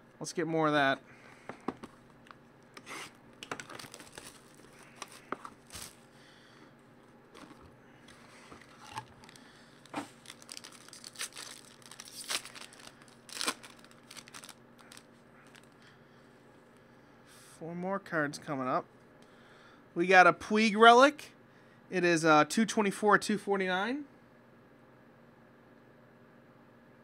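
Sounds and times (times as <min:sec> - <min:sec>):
plastic wrap crinkling and tearing: 0:03.0 - 0:06.0, 0:07.4 - 0:15.8.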